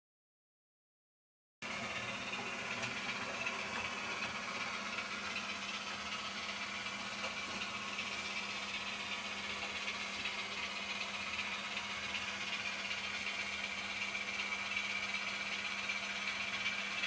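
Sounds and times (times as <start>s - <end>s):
simulated diesel engine hum: 1.6s - 17.0s.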